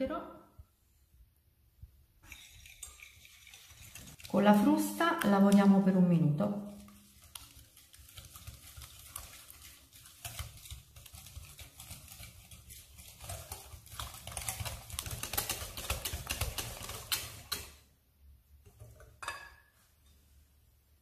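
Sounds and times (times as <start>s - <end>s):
whisk beating in glass bowl: 2.2s - 17.8s.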